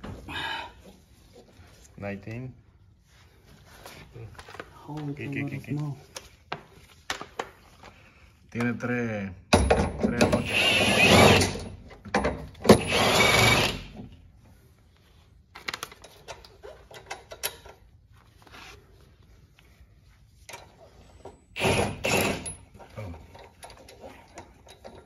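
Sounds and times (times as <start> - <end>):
cordless power tool running: 10.4 - 11.5, 12.8 - 13.9.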